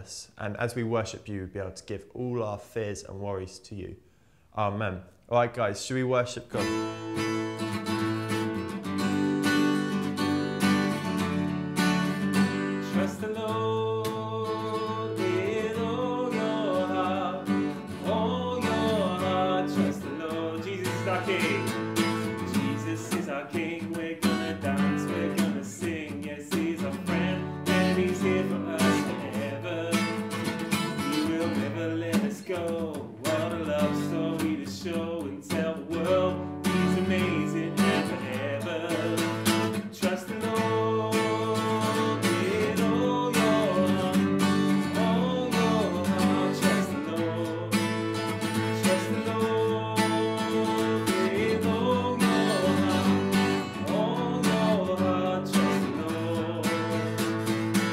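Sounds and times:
acoustic guitar strumming: 6.6s - 57.9s
singing worship song: 12.8s - 57.4s.

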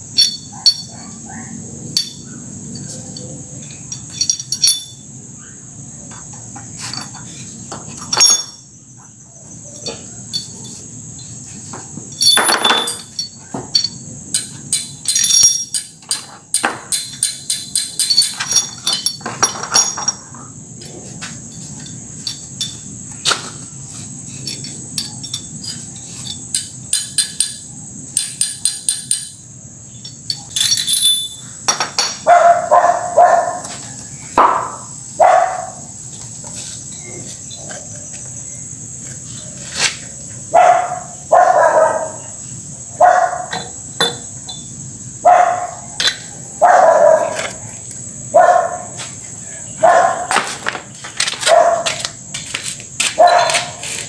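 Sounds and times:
metal engine parts clinking: 0.0s - 1.2s, 1.9s - 5.2s, 6.1s - 8.9s, 9.6s - 32.3s, 43.4s - 44.8s, 45.9s - 46.4s
high insect trill: 0.0s - 54.0s.

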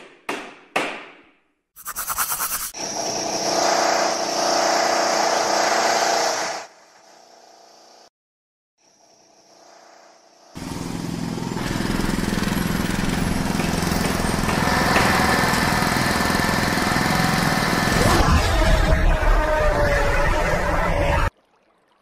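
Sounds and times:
engines: 2.8s - 8.1s, 9.0s - 21.3s
power tools: 10.6s - 18.3s.

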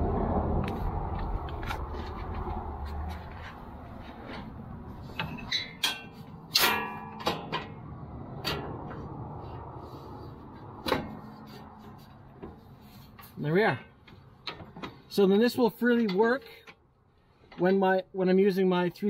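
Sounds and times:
metal latches clanking: 4.2s - 9.0s.

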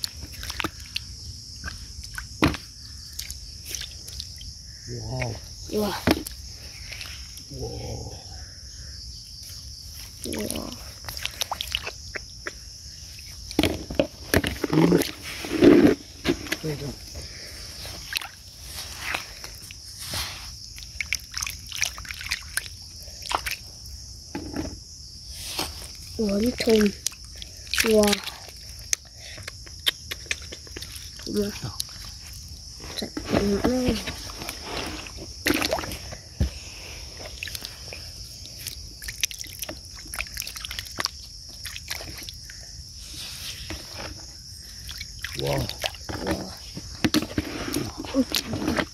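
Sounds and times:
water sloshing: 0.0s - 4.5s, 10.0s - 12.2s, 13.2s - 23.7s, 30.8s - 42.6s, 43.6s - 48.9s
squelching and small splashes: 0.0s - 7.5s, 9.4s - 24.0s, 25.2s - 48.9s
high insect drone: 0.0s - 48.9s.

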